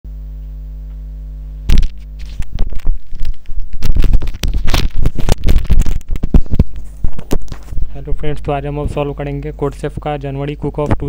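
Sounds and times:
electrical hum: 0:00.1 - 0:11.0
crackling and scraping on microphone: 0:01.0 - 0:09.1.

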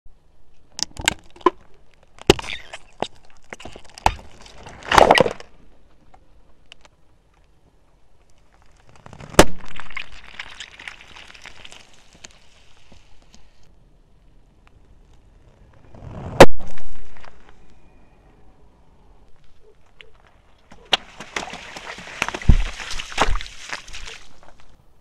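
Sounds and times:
plastic tubes cracking under tyre: 0:00.6 - 0:07.6, 0:08.2 - 0:13.5
tyre crushing with crackling: 0:01.0 - 0:05.6, 0:20.1 - 0:24.8.

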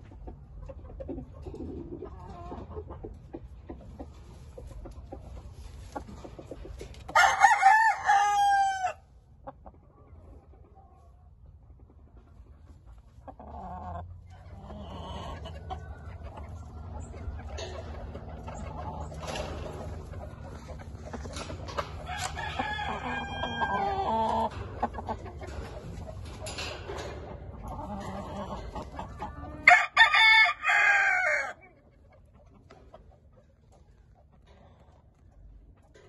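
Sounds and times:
roosters clucking: 0:00.0 - 0:36.0
rooster crowing: 0:07.1 - 0:09.0, 0:22.0 - 0:24.2, 0:29.7 - 0:31.6.

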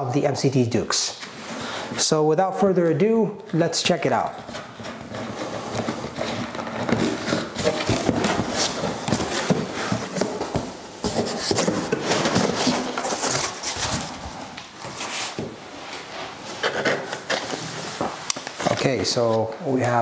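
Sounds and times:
cardboard flaps scraping: 0:04.3 - 0:19.4.

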